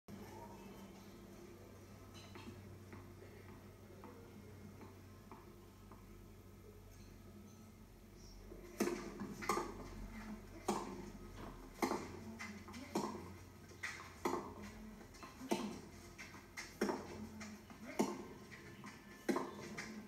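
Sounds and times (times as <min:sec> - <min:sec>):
tennis rackets hitting ball: 0:08.6 - 0:20.0.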